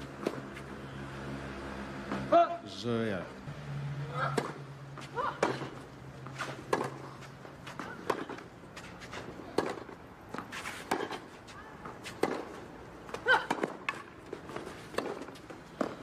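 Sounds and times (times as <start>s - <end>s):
racket hitting tennis ball: 0.0s - 0.7s, 4.1s - 16.0s.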